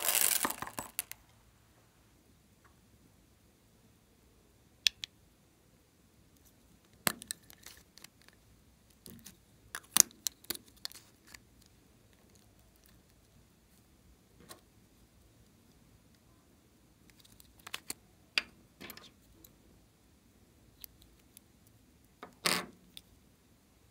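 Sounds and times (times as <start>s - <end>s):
plastic tubes clicking and tapping: 0.0s - 1.2s.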